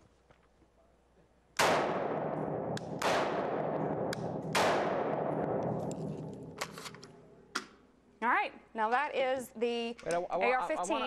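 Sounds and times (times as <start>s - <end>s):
rifle shots echoing indoors: 1.6s - 7.5s.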